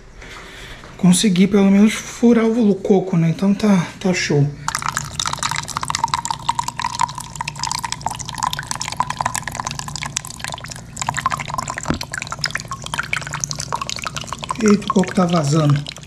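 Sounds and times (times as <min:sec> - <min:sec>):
liquid trickling into mug: 0:04.7 - 0:16.0.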